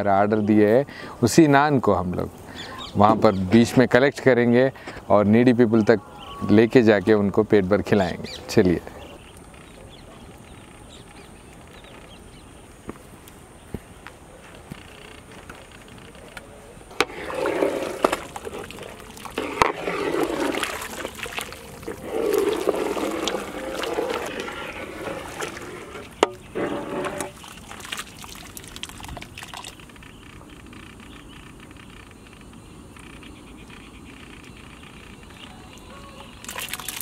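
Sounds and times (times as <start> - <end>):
soup sloshing in pot: 17.0 - 29.7.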